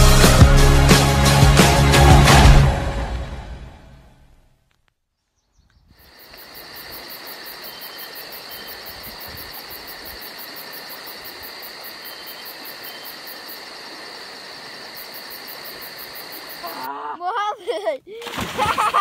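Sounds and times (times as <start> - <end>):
insects chirping: 5.4 - 17.1.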